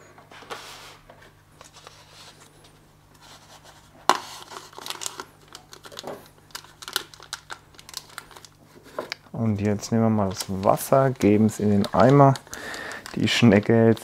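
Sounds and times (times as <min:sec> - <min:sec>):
plastic bag crinkling: 0:04.2 - 0:09.2, 0:10.2 - 0:14.0.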